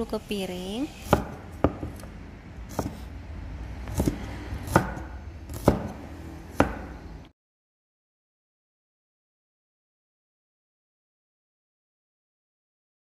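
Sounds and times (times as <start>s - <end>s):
knife chopping on wooden board: 1.0s - 3.1s, 3.8s - 7.1s.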